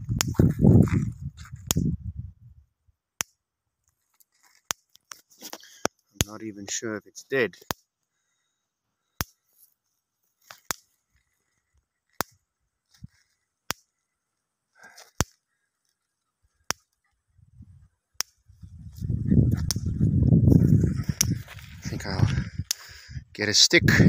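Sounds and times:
low rumbling microphone noise: 0.0s - 2.6s, 18.5s - 24.0s.

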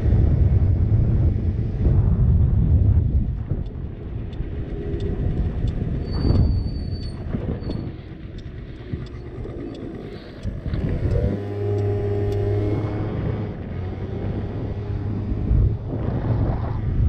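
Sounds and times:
wind noise on microphone: 0.0s - 17.0s
scooter engine running: 3.9s - 15.9s.

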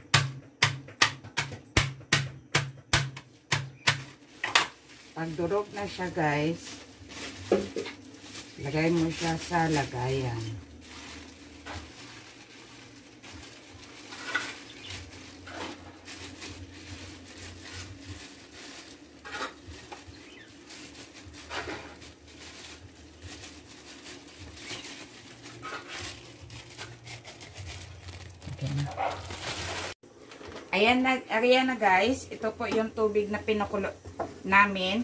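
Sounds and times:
low steady hum: 1.6s - 35.0s
plastic bag crinkling: 4.0s - 30.7s.

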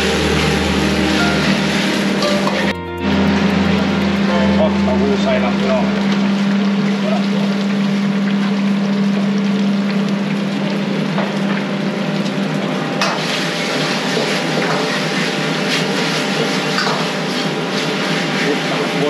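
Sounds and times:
steady low hum: 0.0s - 12.9s
oil bubbling and crackling: 6.0s - 19.0s.

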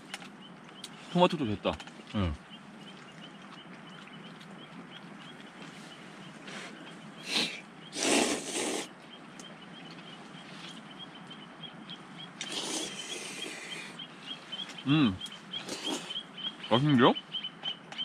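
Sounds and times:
noodles being slurped: 7.3s - 8.9s, 12.4s - 13.7s, 15.6s - 16.2s.

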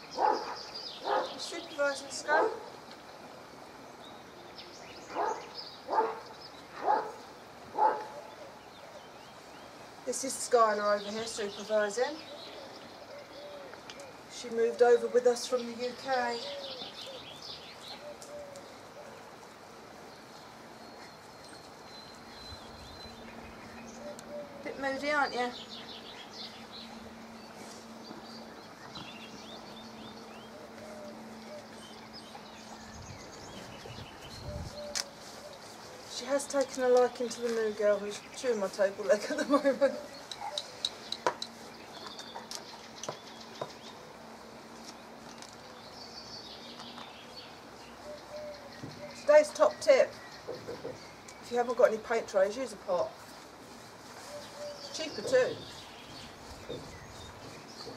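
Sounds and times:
distant bird chirps: 45.1s - 53.1s.

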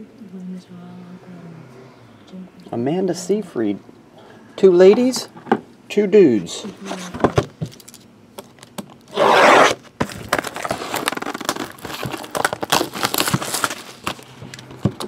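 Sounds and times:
plastic wrap ripping: 9.1s - 14.6s
plastic wrap crinkling and clicking: 10.0s - 15.0s.

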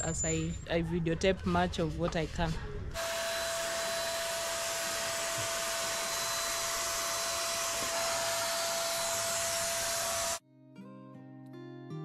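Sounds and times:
electric paint sprayer motor whine: 3.0s - 10.4s.

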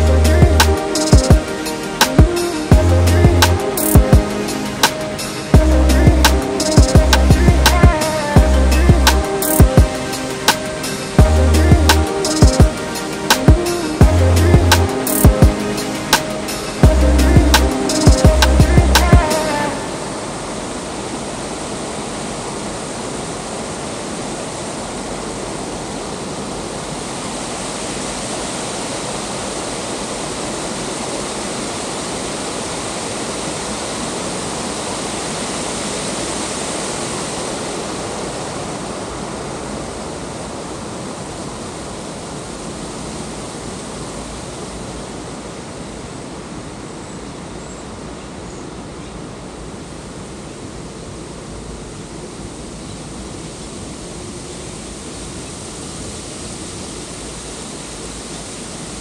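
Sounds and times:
water cascading over rocks: 0.0s - 46.7s.

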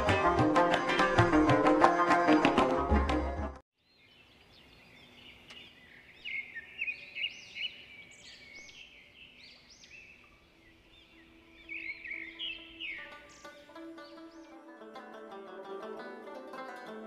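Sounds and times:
small birds chirping: 3.8s - 14.8s
faint background hiss: 3.9s - 17.0s.

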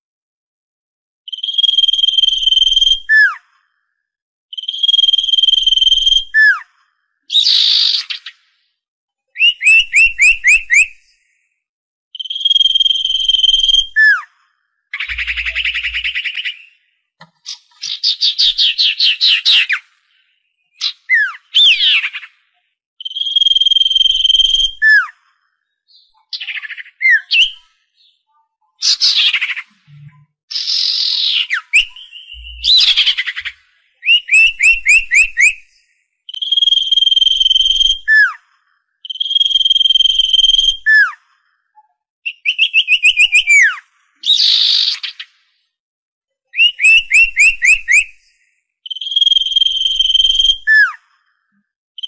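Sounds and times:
bird whistling: 1.3s - 3.4s, 4.6s - 6.6s, 7.3s - 8.3s, 9.4s - 11.0s, 12.2s - 14.3s, 15.0s - 16.8s, 20.8s - 22.2s, 23.0s - 25.1s, 25.9s - 27.6s, 28.8s - 35.6s, 36.3s - 38.4s, 39.1s - 41.2s, 42.3s - 45.2s, 46.6s - 48.2s, 48.9s - 51.0s
bird trills and chattering: 15.0s - 16.7s, 28.8s - 35.5s.

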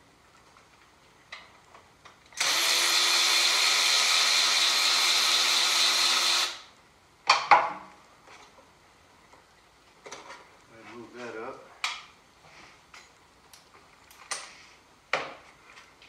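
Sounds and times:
cordless power tool motor running: 2.4s - 6.7s.

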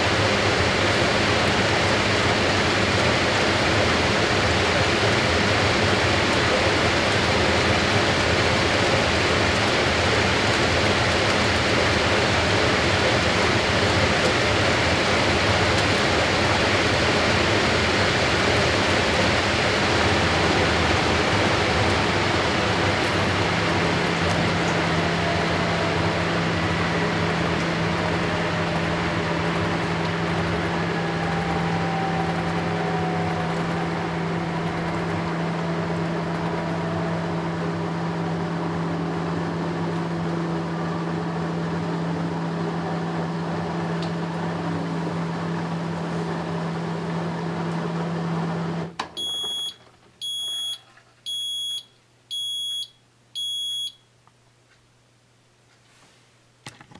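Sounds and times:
washing machine spinning: 0.0s - 51.8s
short high-pitched beeps: 49.2s - 54.0s.

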